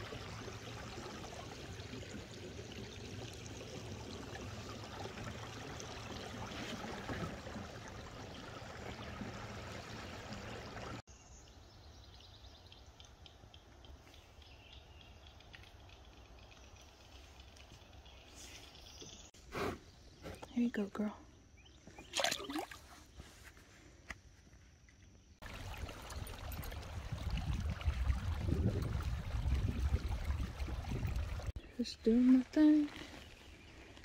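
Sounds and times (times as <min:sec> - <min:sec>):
water lapping against a hull: 0:00.0 - 0:11.0, 0:22.0 - 0:23.2, 0:25.4 - 0:34.0.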